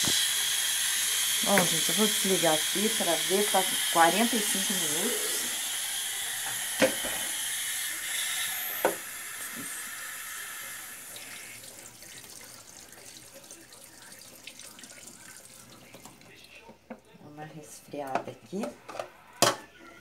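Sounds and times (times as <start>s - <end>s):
pressure cooker steam hissing: 0.0s - 11.7s.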